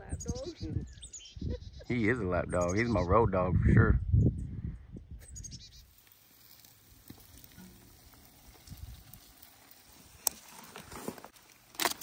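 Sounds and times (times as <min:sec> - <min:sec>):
high bird chirp: 0:00.0 - 0:03.3, 0:05.1 - 0:05.9
fish sizzling on a grill: 0:05.8 - 0:12.0.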